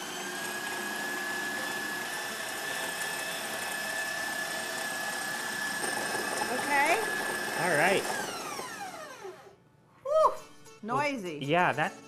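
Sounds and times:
stand mixer motor whine: 0.0 - 9.6.

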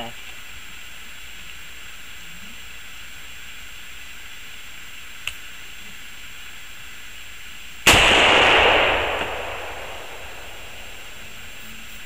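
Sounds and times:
can bursting with loud bang: 7.9 - 11.3
faint sharp crack: 7.9 - 11.4
rifle shot: 7.9 - 11.6.

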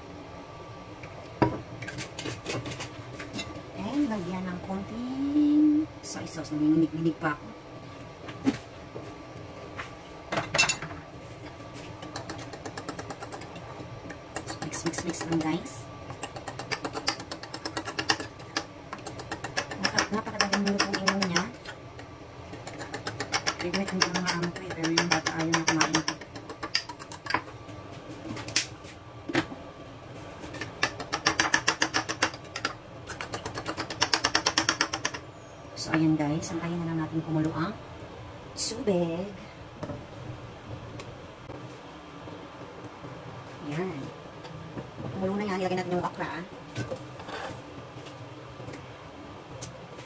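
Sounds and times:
fork beating eggs in bowl: 12.0 - 13.6, 14.3 - 21.6, 22.5 - 27.4.

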